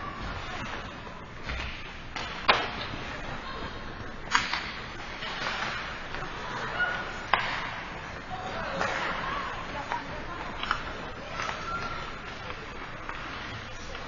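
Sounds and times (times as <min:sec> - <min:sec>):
rink background noise: 0:00.0 - 0:14.0.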